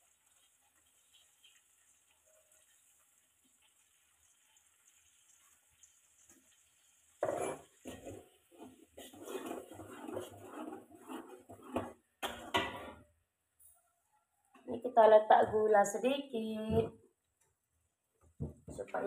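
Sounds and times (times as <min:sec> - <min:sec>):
metal spatula scraping a wok: 0:07.2 - 0:13.1.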